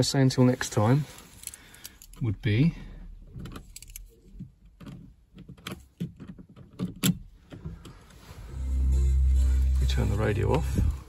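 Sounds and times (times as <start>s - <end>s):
car radio music with heavy bass: 8.2s - 11.0s.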